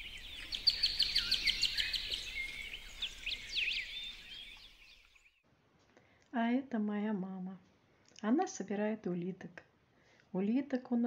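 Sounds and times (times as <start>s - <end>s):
songbirds singing and chirping: 0.0s - 5.4s.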